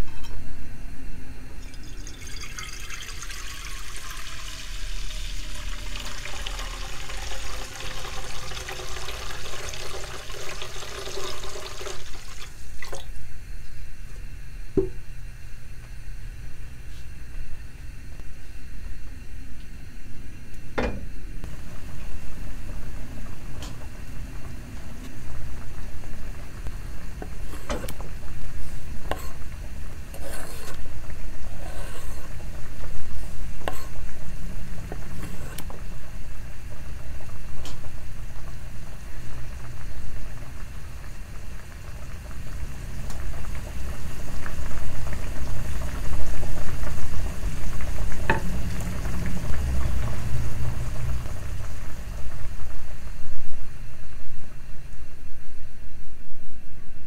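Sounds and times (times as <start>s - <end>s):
gas burner rumble: 1.3s - 13.4s, 19.0s - 54.8s
pot set down on burner grate: 20.8s - 21.1s
knocks and clatter of scraping food: 27.2s - 28.1s, 30.1s - 30.8s.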